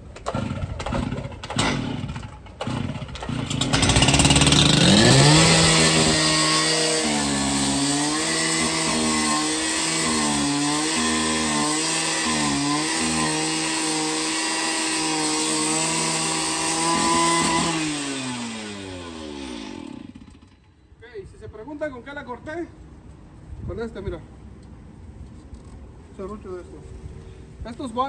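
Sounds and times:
cut-off saw cutting steel: 0:00.2 - 0:20.5.

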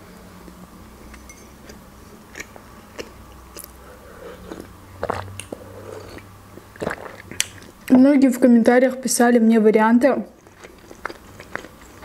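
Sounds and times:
close-up chewing: 0:01.6 - 0:07.9, 0:10.4 - 0:12.0
wet mouth clicks: 0:01.7 - 0:03.8, 0:04.5 - 0:07.8.

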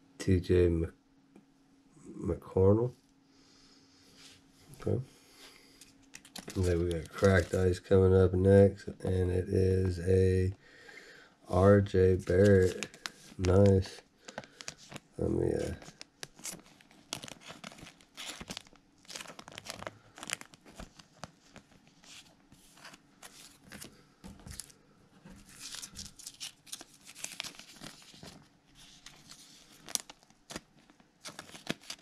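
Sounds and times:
plastic card sleeves crinkling: 0:05.8 - 0:07.9, 0:11.5 - 0:32.0.

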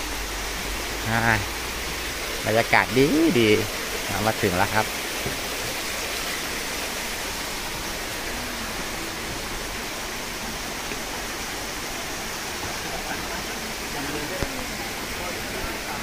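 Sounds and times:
stream and waterfall rushing: 0:00.0 - 0:16.0.

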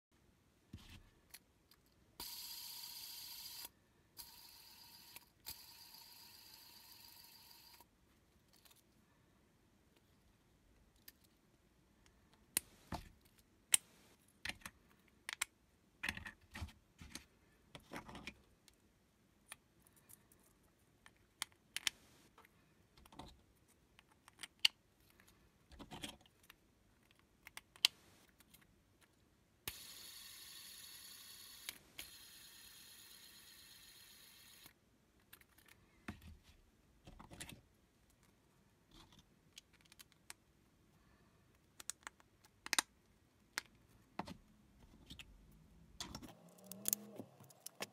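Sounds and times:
plastic tiles clicking and snapping: 0:14.4 - 0:18.8, 0:23.0 - 0:29.2, 0:39.0 - 0:40.5, 0:41.5 - 0:43.8, 0:46.0 - 0:47.9.

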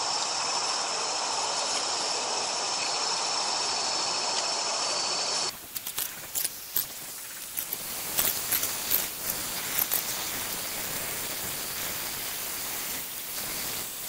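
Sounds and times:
steady background hiss: 0:00.0 - 0:14.0
utensil scraping steel bowl: 0:05.7 - 0:10.9.

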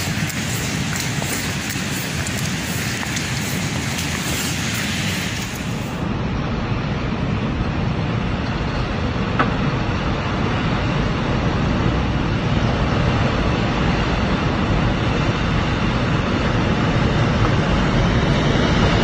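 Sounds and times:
debris flow rumbling: 0:00.0 - 0:06.0.

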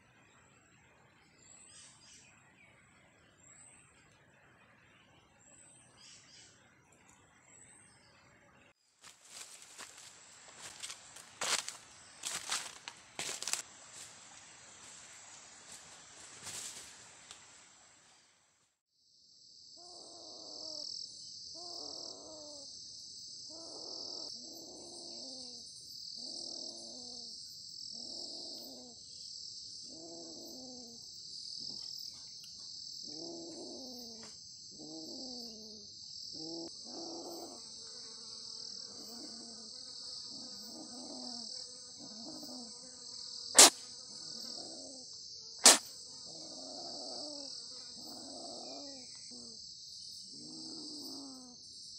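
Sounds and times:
insects droning: 0:00.0 - 0:51.9
sharp loud clicks: 0:43.6 - 0:43.8, 0:45.6 - 0:45.9.

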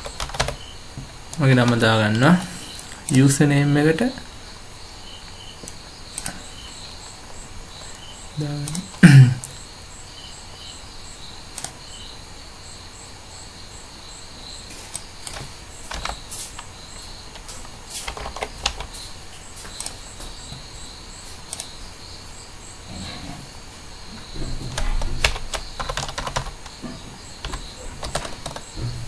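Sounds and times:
keyboard typing: 0:00.0 - 0:03.4, 0:08.6 - 0:09.6, 0:14.9 - 0:20.6, 0:24.2 - 0:26.8, 0:27.4 - 0:29.0
crickets chirping: 0:00.0 - 0:29.0
mouse clicks: 0:21.5 - 0:21.7.

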